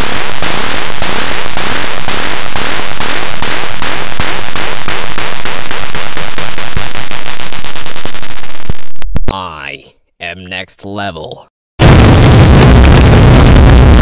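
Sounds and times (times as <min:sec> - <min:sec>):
distorted electronic noise pulses: 0:00.0 - 0:09.3.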